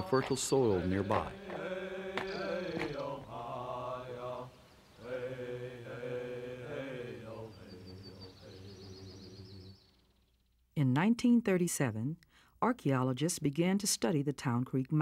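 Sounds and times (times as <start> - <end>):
slow sung chanting: 0.0 - 10.4.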